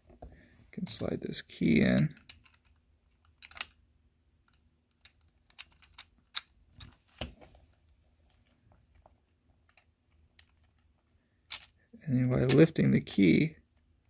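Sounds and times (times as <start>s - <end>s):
plastic bricks clicking: 2.2s - 3.8s, 4.5s - 6.5s.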